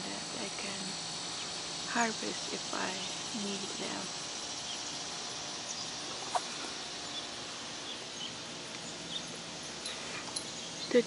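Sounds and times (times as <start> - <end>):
insects hissing: 0.0 - 11.0
faint bird chirps: 4.5 - 11.0.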